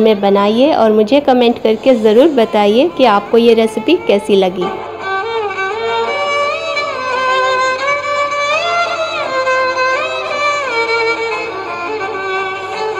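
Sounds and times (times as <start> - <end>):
sliding melody line: 0.0 - 8.0.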